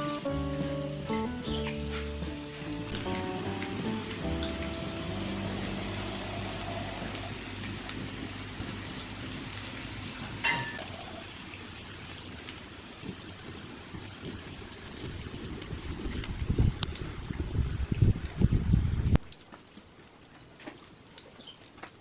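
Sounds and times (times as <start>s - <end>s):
tofu sizzling in oil: 0.0s - 11.4s.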